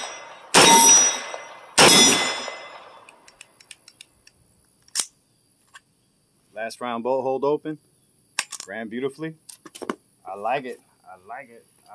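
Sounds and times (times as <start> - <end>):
gunshot with echo: 0.0 - 3.0
sharp click: 3.0 - 5.9.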